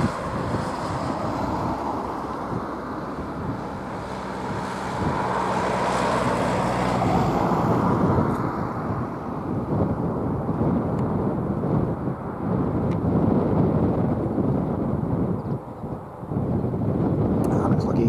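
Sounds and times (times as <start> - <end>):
turboprop engines droning: 0.0 - 18.0.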